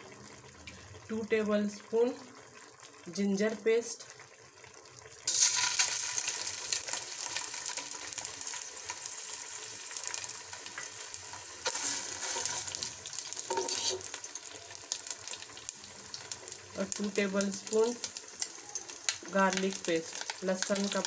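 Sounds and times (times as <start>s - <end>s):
paste sizzling in hot oil: 5.0s - 21.0s.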